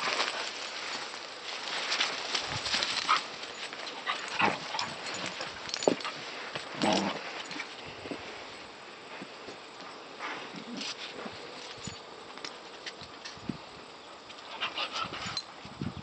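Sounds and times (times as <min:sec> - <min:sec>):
dogs yipping and whimpering: 0:02.9 - 0:06.2, 0:14.4 - 0:15.5.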